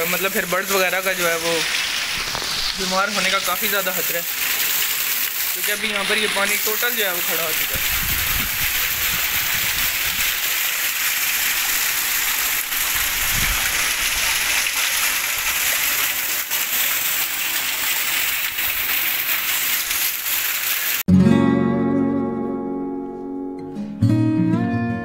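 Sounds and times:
heavy rain splashing into water: 0.0s - 21.1s
water streaming down wall: 0.0s - 21.1s.

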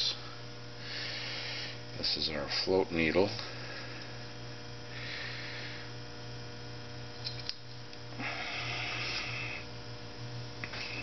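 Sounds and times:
electrical mains hum: 0.0s - 11.0s
small metal parts clicking: 7.2s - 7.6s.

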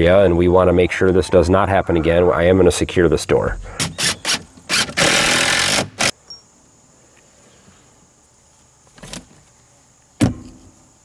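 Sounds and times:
impact driver driving screw: 3.8s - 6.2s
rustle: 4.6s - 11.0s.

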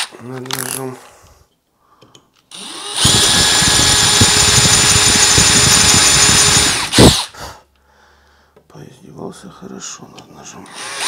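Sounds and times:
cordless drill whining and grinding: 2.5s - 7.4s, 10.7s - 11.0s.

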